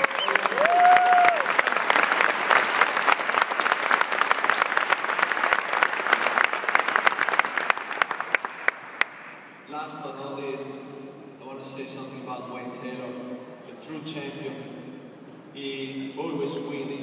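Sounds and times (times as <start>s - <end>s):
audience applauding: 0.0s - 9.4s.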